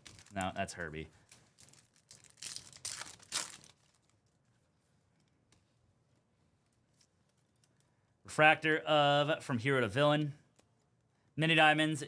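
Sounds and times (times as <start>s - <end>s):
foil wrapper tearing and crinkling: 1.4s - 4.2s.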